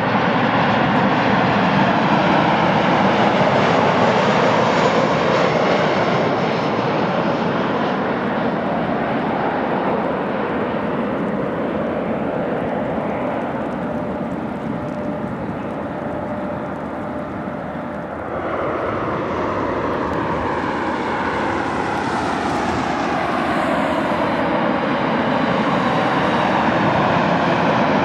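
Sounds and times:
jet engines rushing: 0.0s - 28.0s
approaching jet phasing tone: 10.2s - 28.0s.

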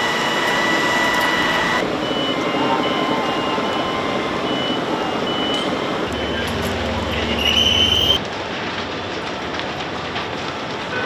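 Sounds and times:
high electronic tone: 1.4s - 8.2s
electronic beeping pulses: 2.0s - 8.2s.

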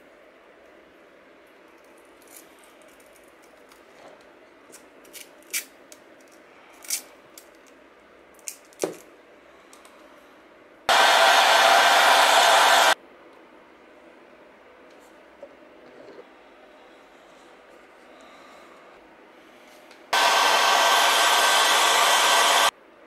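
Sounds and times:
loud steady hiss: 10.9s - 13.0s, 20.2s - 22.7s.

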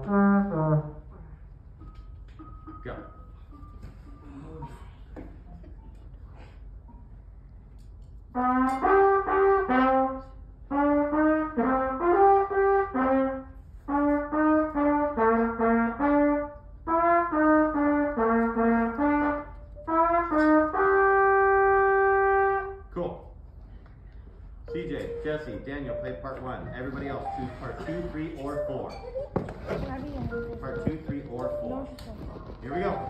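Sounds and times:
brass instrument melody: 0.0s - 1.3s, 8.3s - 22.9s, 24.7s - 33.0s.

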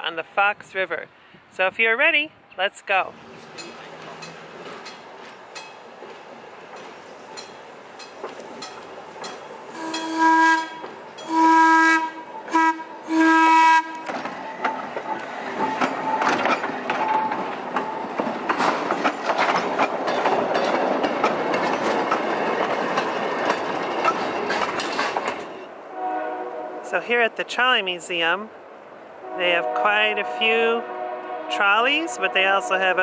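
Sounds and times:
train wheels clicking over rail joints: 3.2s - 11.4s, 13.8s - 25.7s
train air horn blasts: 9.7s - 14.2s, 25.9s - 27.0s, 29.2s - 33.0s.

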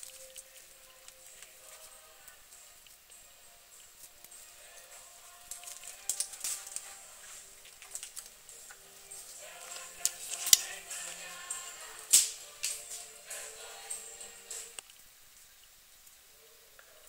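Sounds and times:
ferret rustling: 0.0s - 15.0s
ferret claws clicking on floor: 5.4s - 13.1s.

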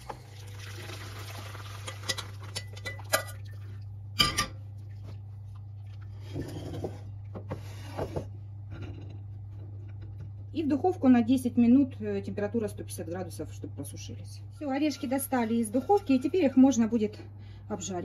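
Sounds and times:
water poured through strainer: 0.1s - 3.6s
steady low hum: 2.8s - 18.0s.

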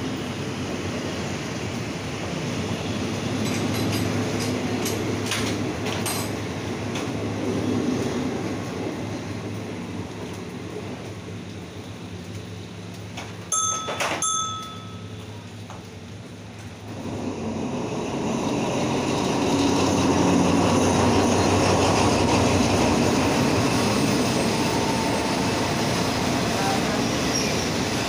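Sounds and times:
diesel train rumbling past: 0.0s - 28.0s
short metallic rings: 13.5s - 15.2s.

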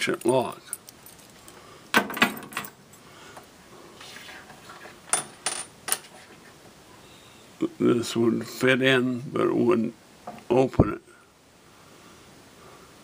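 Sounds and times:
keys jangling: 0.0s - 1.6s.

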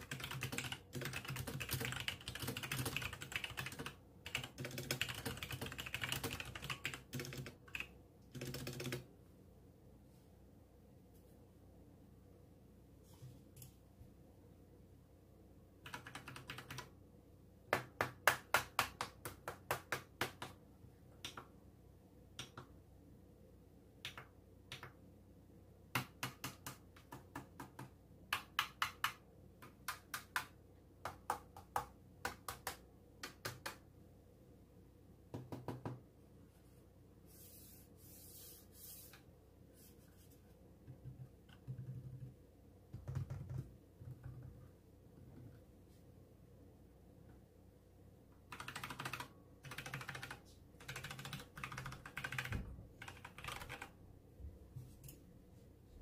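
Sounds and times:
mechanical keyboard typing: 0.0s - 9.1s, 15.8s - 16.9s, 41.0s - 42.3s, 43.0s - 44.5s, 48.5s - 54.0s.

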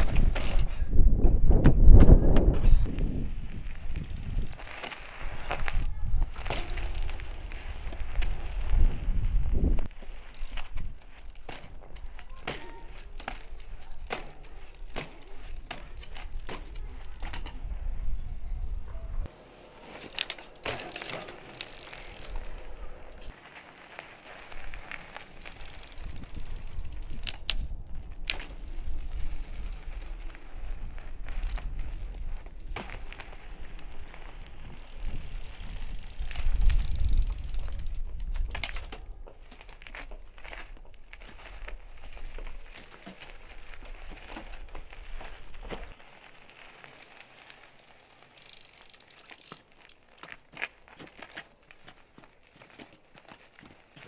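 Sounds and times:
bike tyres rolling on ice: 0.0s - 54.0s.

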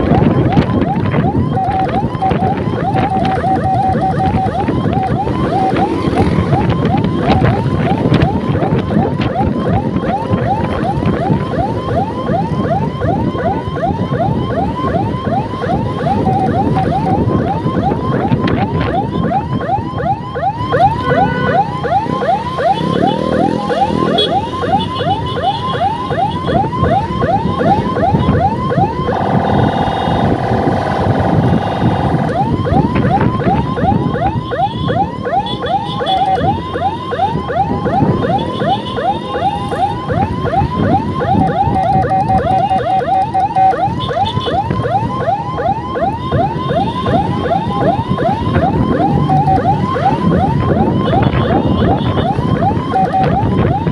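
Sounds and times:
electronic siren yelping: 0.0s - 53.9s
wind noise: 0.0s - 53.9s
buzzing horn tone: 29.0s - 32.4s
scooter engine: 29.0s - 32.5s.

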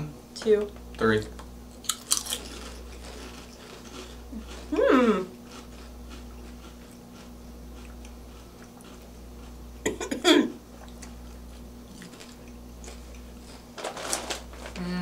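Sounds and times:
steady low hum: 0.0s - 15.0s
chewing crunchy chips: 1.8s - 9.7s, 10.7s - 13.7s.

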